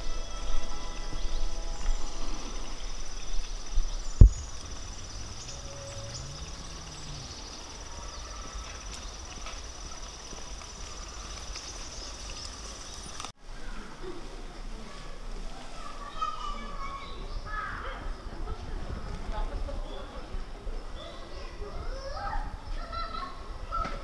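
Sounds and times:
crickets trilling: 0:00.0 - 0:13.3.

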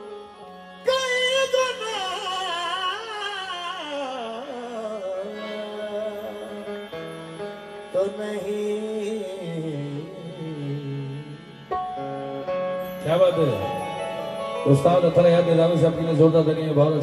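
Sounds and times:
man singing melismatic line: 0:00.0 - 0:07.0, 0:07.9 - 0:11.6, 0:12.9 - 0:17.0.

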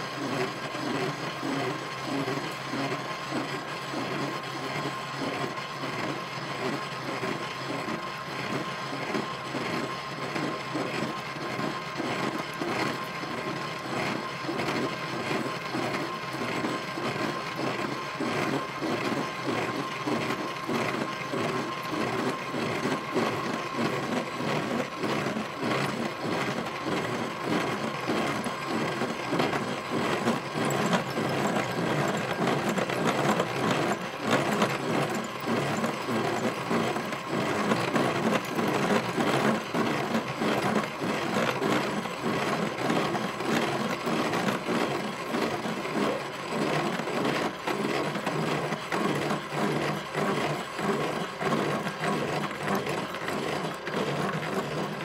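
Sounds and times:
drill press whine: 0:00.0 - 0:55.0
drill bit grinding steel: 0:20.1 - 0:42.1.

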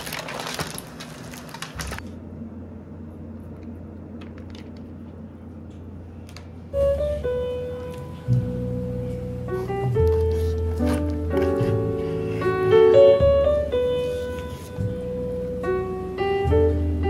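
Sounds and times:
aluminium foil crinkling: 0:00.0 - 0:02.1, 0:09.6 - 0:12.5
low steady hum: 0:00.0 - 0:17.0.

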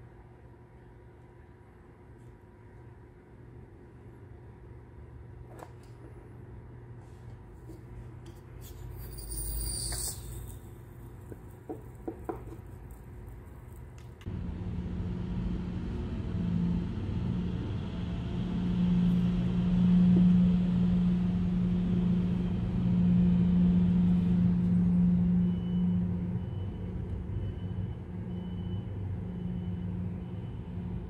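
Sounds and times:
low mechanical humming rumble: 0:00.0 - 0:31.0.

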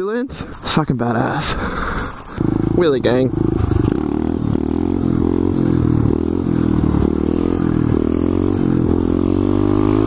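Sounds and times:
motorcycle engine revving: 0:02.3 - 0:10.0.

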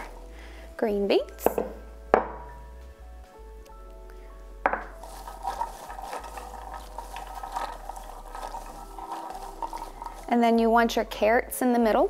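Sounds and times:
green beans rustling in dish: 0:00.0 - 0:00.3, 0:04.7 - 0:10.9.

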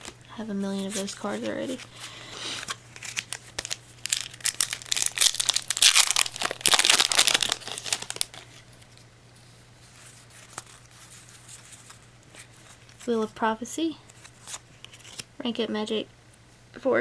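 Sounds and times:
foil wrapper crinkling and tearing: 0:00.8 - 0:08.6.

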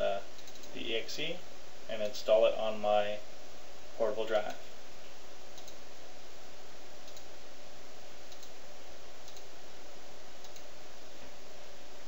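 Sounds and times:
steady background hiss: 0:00.0 - 0:12.0
computer mouse clicks: 0:00.4 - 0:00.8, 0:05.6 - 0:05.8, 0:07.0 - 0:07.3, 0:08.3 - 0:08.6, 0:09.2 - 0:09.5, 0:10.4 - 0:10.7.

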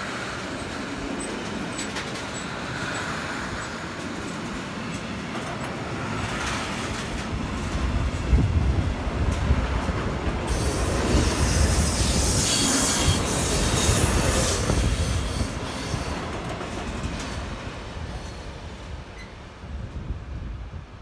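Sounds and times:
train passing on rails: 0:00.0 - 0:21.0
high wheel squeal: 0:10.5 - 0:16.2.

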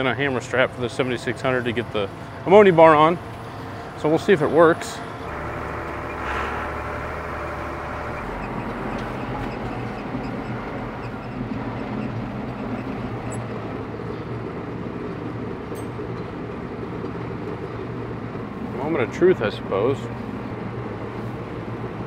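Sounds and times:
tractor diesel engine idling: 0:00.0 - 0:15.1.

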